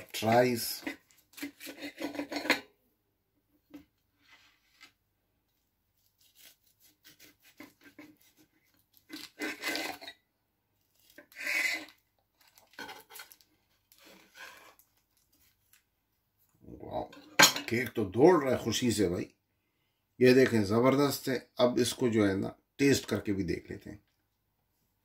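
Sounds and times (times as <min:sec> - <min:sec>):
knife blade scraping plate: 0:00.8 - 0:02.7, 0:09.1 - 0:10.2, 0:11.2 - 0:12.0
bread knife sawing through cake: 0:01.4 - 0:02.5, 0:06.1 - 0:08.5, 0:11.2 - 0:12.0.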